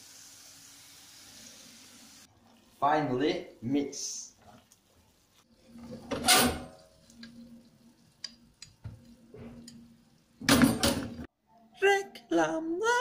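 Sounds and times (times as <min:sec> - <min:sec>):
kitchenware knocks and clicks: 0:10.4 - 0:11.3.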